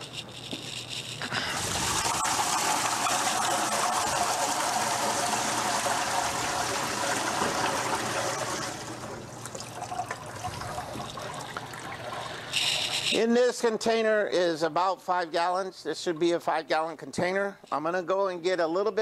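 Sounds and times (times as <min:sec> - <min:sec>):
water pouring into a tank: 0:01.5 - 0:13.0.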